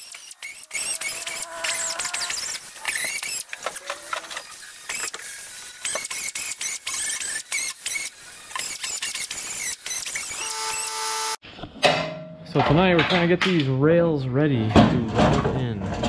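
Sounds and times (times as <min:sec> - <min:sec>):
air grinder whining on metal: 0:00.0 - 0:11.4.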